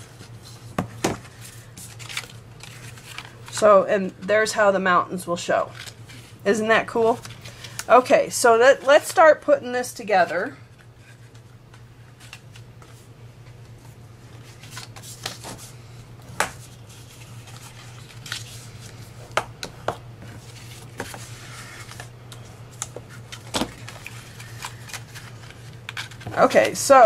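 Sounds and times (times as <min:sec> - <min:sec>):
paper rustling: 0:00.0 - 0:03.6, 0:13.8 - 0:15.7, 0:16.4 - 0:19.0, 0:20.2 - 0:27.0
low steady hum: 0:00.0 - 0:27.0.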